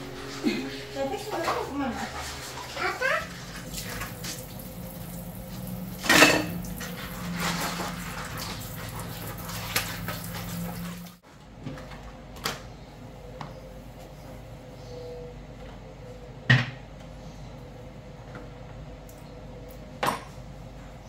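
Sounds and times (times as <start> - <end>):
steady low hum: 0.0 - 11.2.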